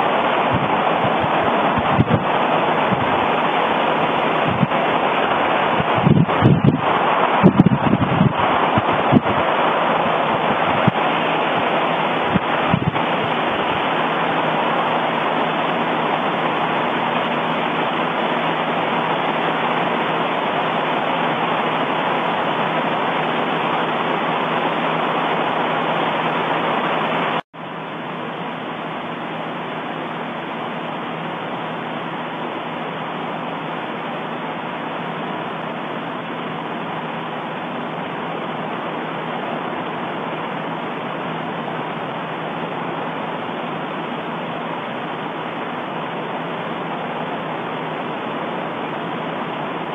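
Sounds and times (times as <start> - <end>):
volcano rushing noise: 0.0 - 49.9.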